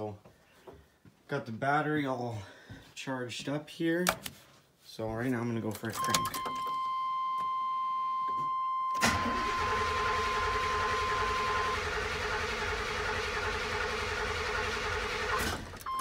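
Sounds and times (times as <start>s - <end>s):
high warning tone: 6.0s - 11.9s
engine cranking on starter: 9.0s - 16.0s.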